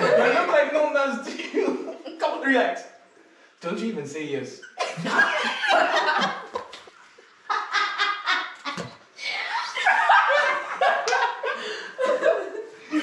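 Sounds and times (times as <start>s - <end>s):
people laughing: 0.0s - 2.1s, 4.7s - 9.0s, 9.6s - 13.0s.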